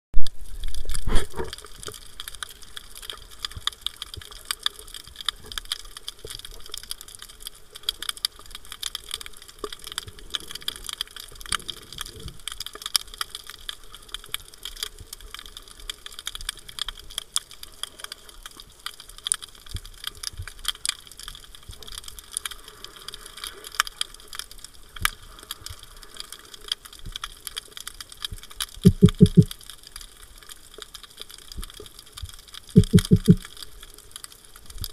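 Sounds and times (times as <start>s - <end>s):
dense crackle of tiny clicks: 0.2s - 34.9s
low pulses: 28.8s - 29.5s, 32.8s - 33.4s
loud low underwater thump: 32.8s - 33.4s.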